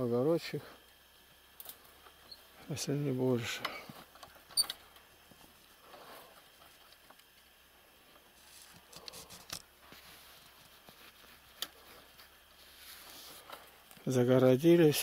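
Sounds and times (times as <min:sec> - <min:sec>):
faint rustling: 0:08.1 - 0:14.2.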